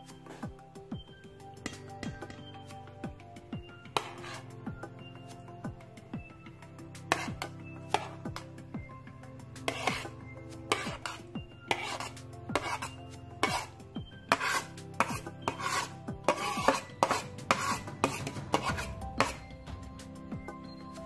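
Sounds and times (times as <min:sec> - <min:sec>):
quiet background music: 0:00.0 - 0:21.0
rasping scrapes: 0:04.0 - 0:04.5, 0:07.1 - 0:08.2, 0:09.7 - 0:10.1, 0:10.7 - 0:19.5.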